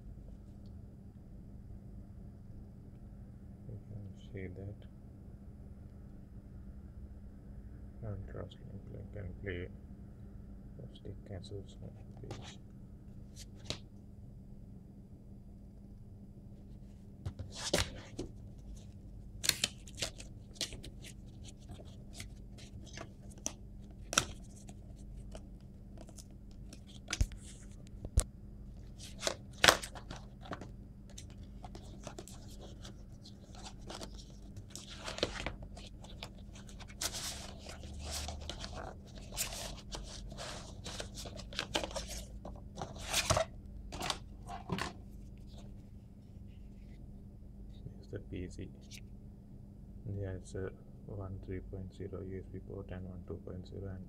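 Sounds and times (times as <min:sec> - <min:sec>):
cardboard rustling and scraping: 0:17.3 - 0:25.4, 0:28.8 - 0:45.8.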